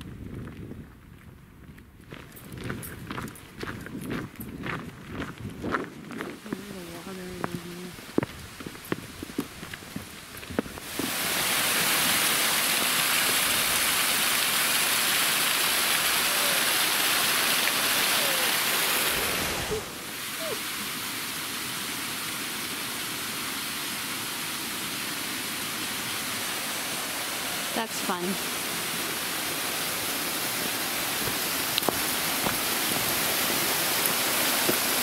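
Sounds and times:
water rushing over waterfall: 10.2 - 35.0.

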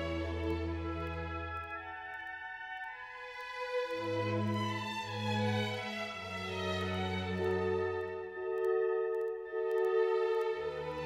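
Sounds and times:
slow music of held chords: 0.0 - 11.0.

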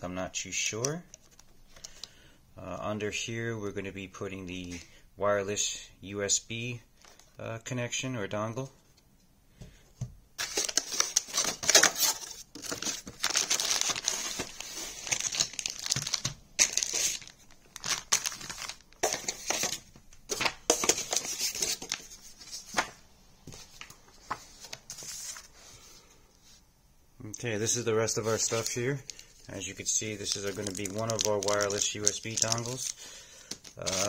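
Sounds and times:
plastic bags crinkling: 10.4 - 22.8, 27.7 - 34.0.

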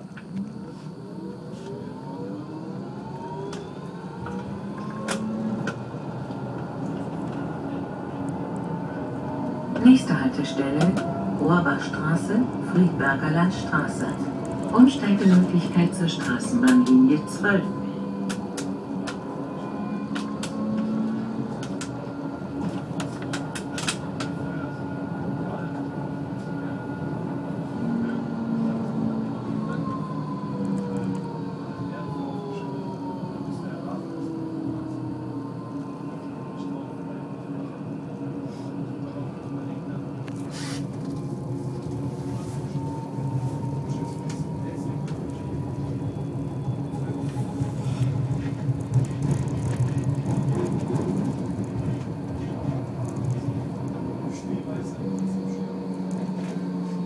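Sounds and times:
tram motor whining: 0.0 - 57.0
tram running noise: 0.0 - 57.0
wheels clicking over junctions: 42.8 - 54.3.

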